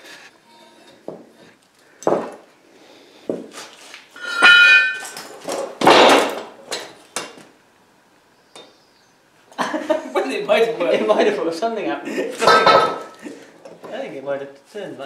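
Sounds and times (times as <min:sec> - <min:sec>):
ringing metallic squeal: 0:04.2 - 0:05.1
metal clatter: 0:04.2 - 0:06.9
metal clanks and knocks: 0:04.2 - 0:07.4, 0:12.4 - 0:13.2.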